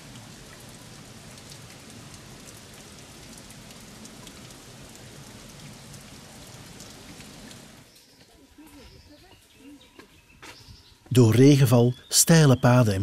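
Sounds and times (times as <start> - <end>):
water dripping on rock: 0.0 - 7.8.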